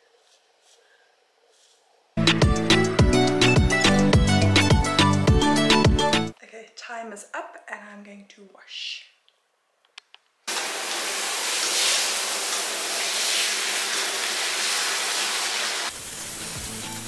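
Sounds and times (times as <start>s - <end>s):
background music: 2.2s - 6.4s, 16.1s - 17.0s
shower water rushing into bathtub: 10.5s - 17.0s.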